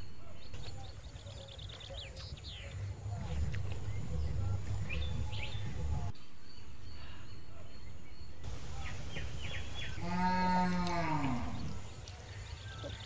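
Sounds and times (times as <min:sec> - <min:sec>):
birds chirping: 0:00.0 - 0:13.0
cow mooing: 0:09.9 - 0:11.8.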